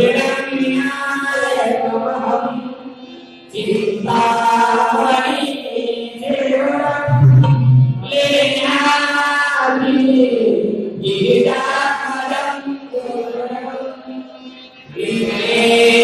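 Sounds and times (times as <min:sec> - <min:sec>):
music accompaniment: 0:06.8 - 0:08.7.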